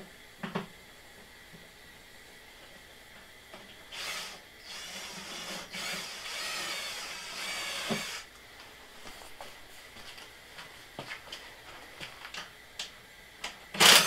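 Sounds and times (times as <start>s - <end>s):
high-pitched power tool whirring: 3.9s - 8.3s.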